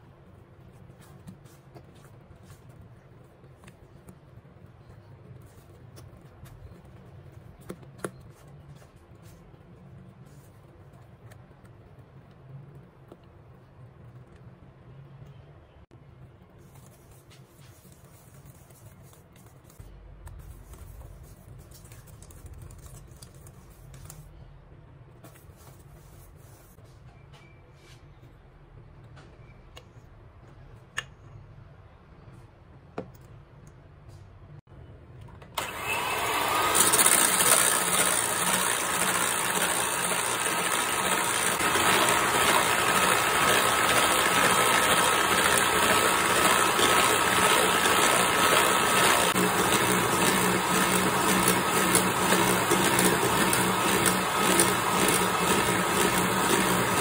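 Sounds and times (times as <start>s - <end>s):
whisk scraping a steel bowl: 36.8s - 57.0s.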